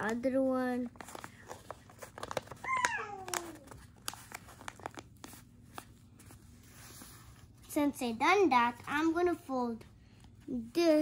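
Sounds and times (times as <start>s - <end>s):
paper crinkling and folding: 0.0s - 7.6s.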